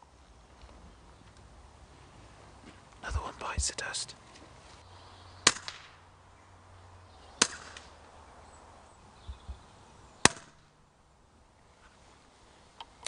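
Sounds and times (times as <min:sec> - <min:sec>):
air rifle shots: 0:05.4 - 0:06.0, 0:07.4 - 0:08.0, 0:10.2 - 0:10.7.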